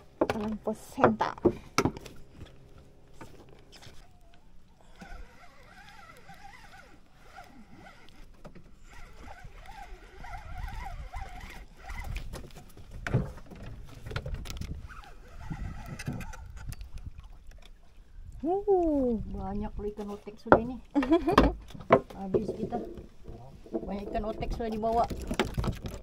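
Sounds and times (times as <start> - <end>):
wind and water rumble: 0.0 - 26.0
fishing reel whirring: 4.8 - 12.3, 14.8 - 16.7.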